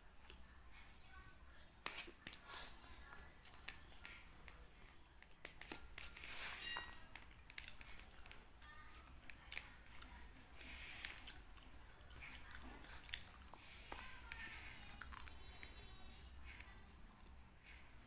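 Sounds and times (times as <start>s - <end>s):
spoon scraping paper bowl: 1.8s - 2.8s, 5.4s - 9.8s
chewing and crunching: 1.8s - 17.9s.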